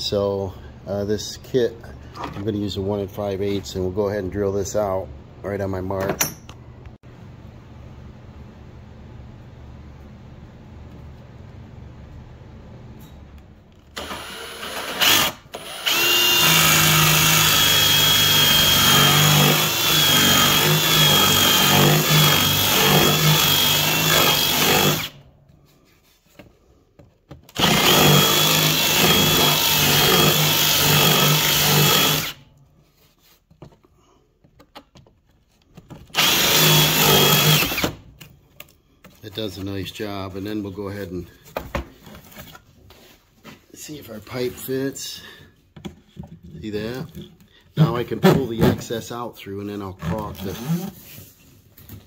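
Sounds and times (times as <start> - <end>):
power drill hole saw whine: 14.0 - 25.2, 27.6 - 32.4, 36.2 - 37.9.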